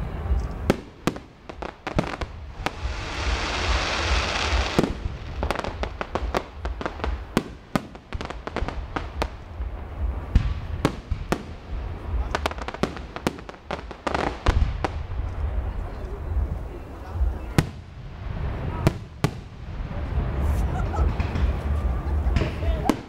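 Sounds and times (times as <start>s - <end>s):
fireworks bangs: 0.0s - 23.0s
crackling pops: 0.3s - 16.2s
firework hiss: 0.4s - 15.5s, 17.3s - 23.0s.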